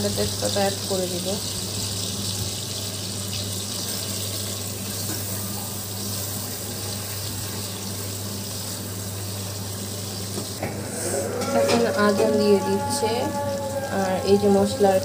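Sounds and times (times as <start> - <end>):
spice paste sizzling in pot: 0.0 - 10.3
low hum: 10.6 - 15.0.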